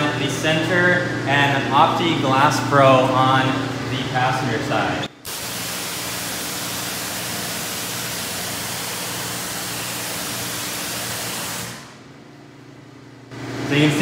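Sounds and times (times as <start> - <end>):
pressure washer spraying water: 5.2 - 12.0.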